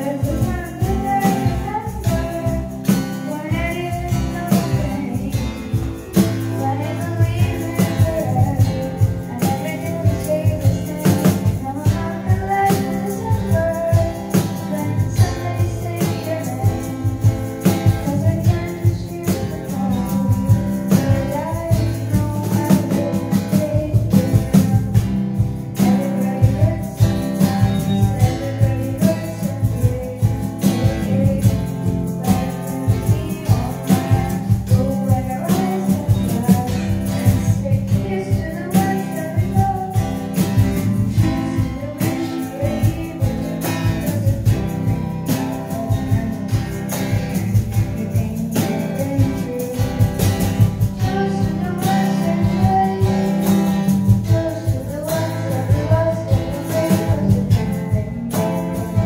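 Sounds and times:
acoustic guitar: 0.0s - 59.0s
cajon beating a rhythm: 0.0s - 59.0s
person singing into a microphone: 0.0s - 59.0s.

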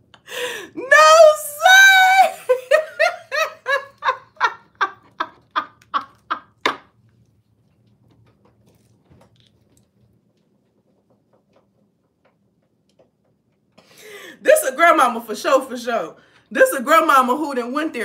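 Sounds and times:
woman laughing hard: 1.7s - 6.7s.

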